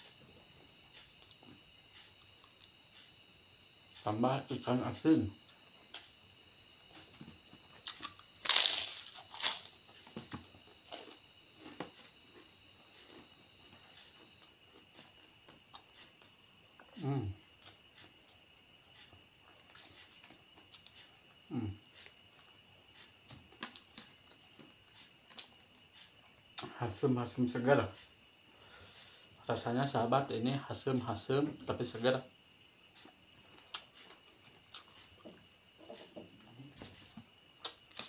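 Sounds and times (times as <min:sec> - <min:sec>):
crickets chirping: 0:00.0 - 0:38.0
crunchy bite: 0:07.8 - 0:11.2, 0:37.6 - 0:38.0
person humming mm: 0:17.0 - 0:17.4, 0:21.5 - 0:21.8.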